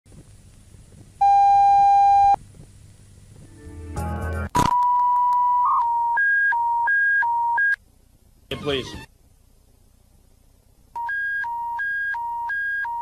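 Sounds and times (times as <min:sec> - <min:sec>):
burst of static: 0:08.5 - 0:09.2.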